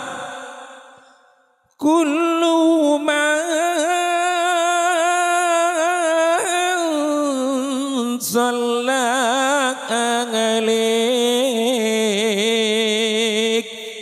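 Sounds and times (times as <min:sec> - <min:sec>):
person singing: 0:00.0 - 0:01.1.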